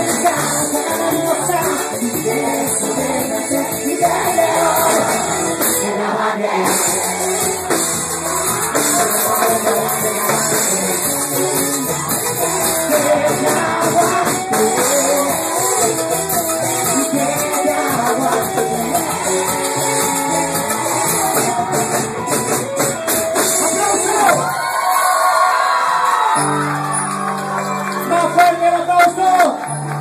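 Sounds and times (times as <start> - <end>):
man singing: 0.0 - 7.7, 8.8 - 22.2
live cumbia music: 0.0 - 30.0
shaker percussion: 6.7 - 23.5.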